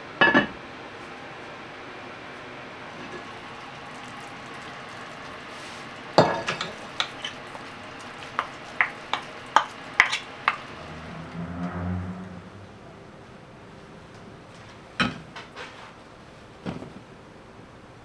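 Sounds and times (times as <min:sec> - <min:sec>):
soup simmering and bubbling: 0:02.9 - 0:12.3.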